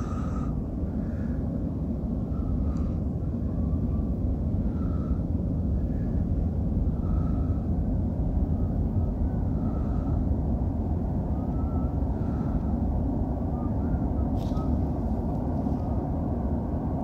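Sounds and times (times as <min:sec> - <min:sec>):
underground station rumble: 0:00.0 - 0:17.0.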